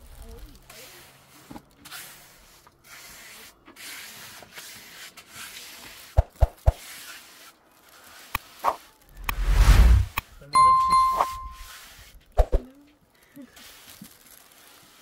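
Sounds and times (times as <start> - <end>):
scraping on rough surface: 0.8 - 10.2
loud rushing sound: 9.2 - 10.2.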